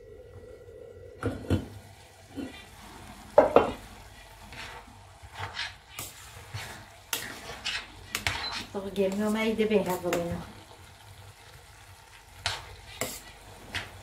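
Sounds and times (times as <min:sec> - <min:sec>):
metal spoon scraping pot: 0:04.5 - 0:08.8.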